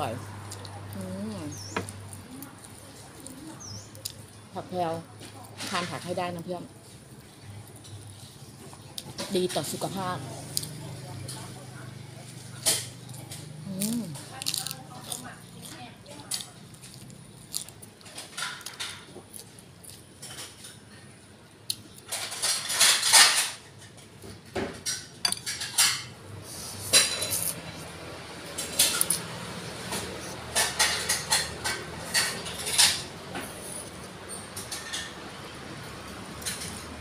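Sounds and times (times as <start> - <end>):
chewing: 0.2 - 4.6, 12.3 - 20.8, 26.4 - 34.8.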